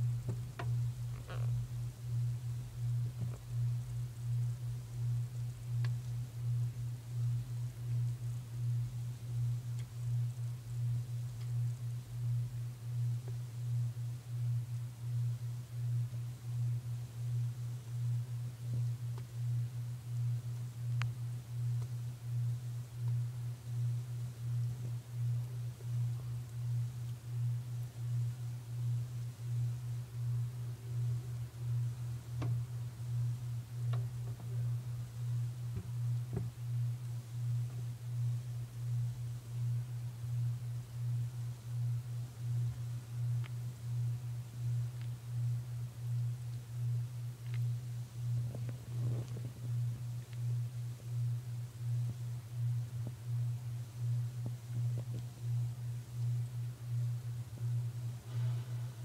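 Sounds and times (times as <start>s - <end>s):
low throbbing hum: 0.0s - 59.0s
faint soft clicks: 20.5s - 21.2s, 43.4s - 43.6s, 47.4s - 47.7s.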